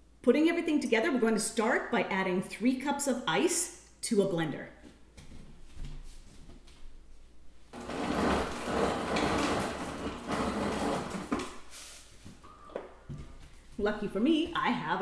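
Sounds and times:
ice dispenser pouring ice: 7.8 - 11.6.

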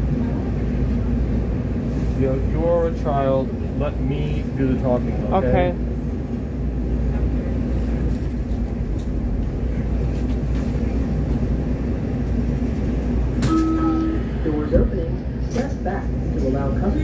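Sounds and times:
train wheels rumbling on rails: 0.0 - 17.0
short steady tone: 13.4 - 14.4.

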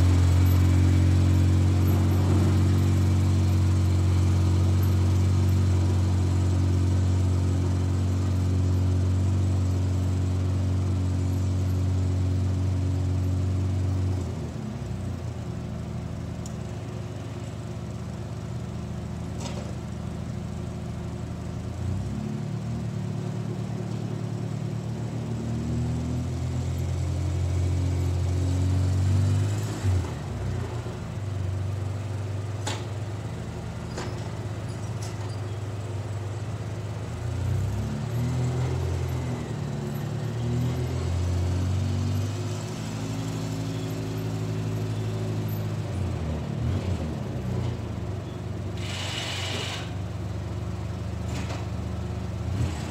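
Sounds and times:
quad bike engine running: 0.0 - 12.2.

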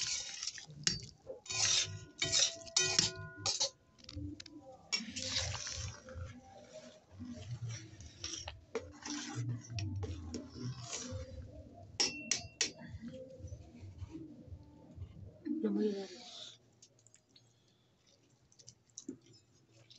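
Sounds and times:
ladle sloshing and scraping in pot: 0.0 - 15.2
ladle clinking against metal pot: 0.8 - 3.8, 12.0 - 12.8.

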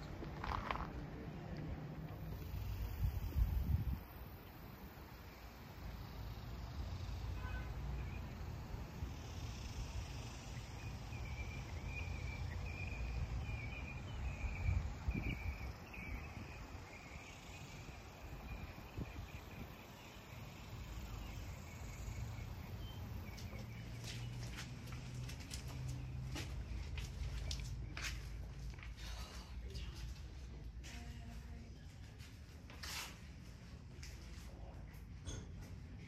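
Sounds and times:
insects chirping: 2.0 - 29.3
wind rumble on microphone: 2.8 - 4.2, 14.2 - 16.8, 18.3 - 19.8.

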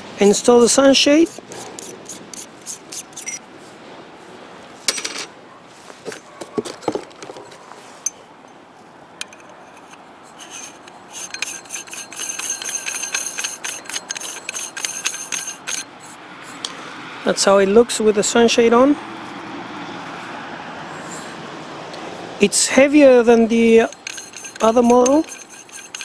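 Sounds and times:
scratchy rasping of threads: 0.2 - 3.4, 9.3 - 16.7, 23.3 - 26.0
metal clicks and knocks: 9.2 - 10.0.

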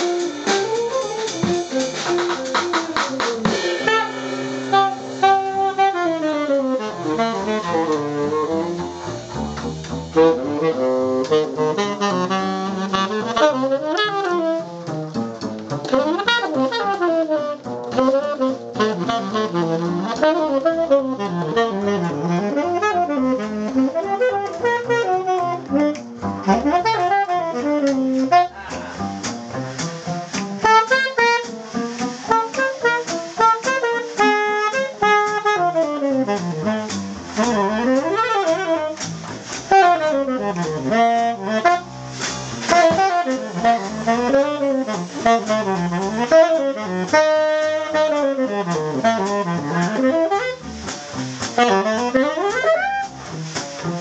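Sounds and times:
saxophone improvising: 0.0 - 14.9, 15.8 - 54.0
plucked double bass: 0.0 - 54.0.

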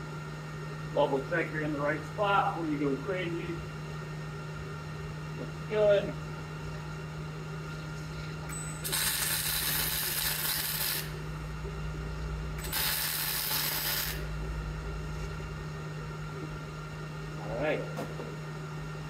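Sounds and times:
steady low hum: 0.0 - 19.0
welder arc crackling: 8.8 - 11.2, 12.6 - 14.3.

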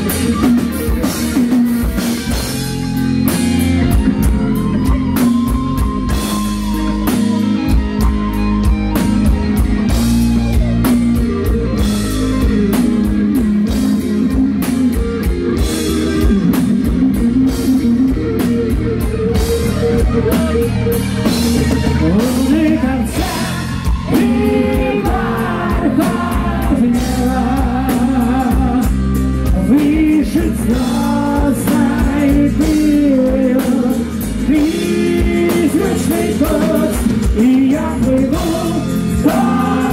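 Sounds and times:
bass guitar: 0.0 - 39.9
distorted electric guitars: 0.0 - 39.9
drum kit: 0.0 - 39.9
male singer: 21.8 - 39.9.

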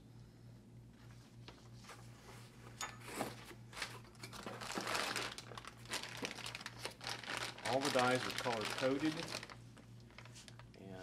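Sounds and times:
packaging crinkling: 3.7 - 10.9.

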